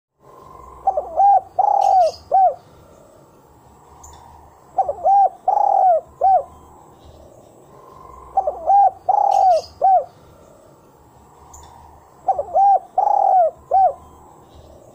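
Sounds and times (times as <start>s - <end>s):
dove cooing: 0.2s - 2.9s, 4.7s - 6.7s, 7.8s - 10.4s, 11.6s - 14.2s
small bird high chirps: 0.9s - 2.6s, 8.4s - 10.1s.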